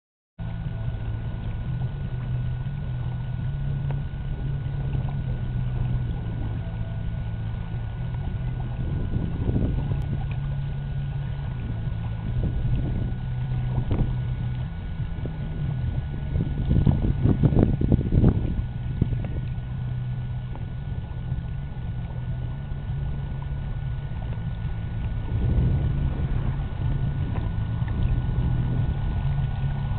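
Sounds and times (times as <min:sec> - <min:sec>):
engine humming with faint whine: 0:00.4 - 0:29.9.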